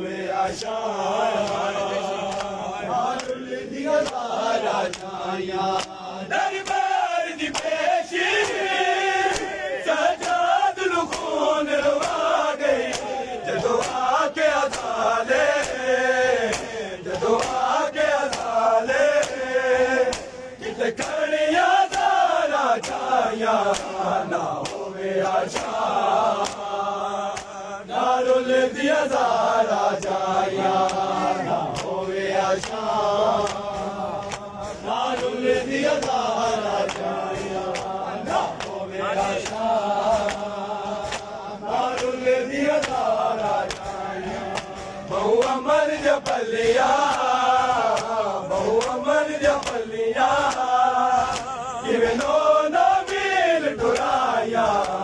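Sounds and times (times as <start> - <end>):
men chanting a lament: 0.0 - 55.0
hands slapping on chests: 0.3 - 55.0.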